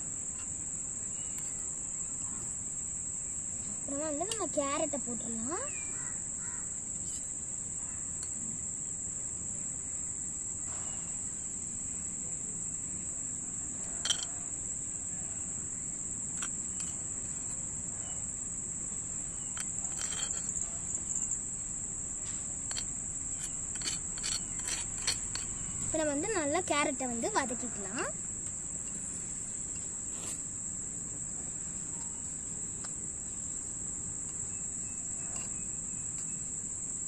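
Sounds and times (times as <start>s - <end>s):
insects chirring: 0.0s - 37.0s
metal spoon scraping clay pot: 19.4s - 20.7s, 22.7s - 26.3s.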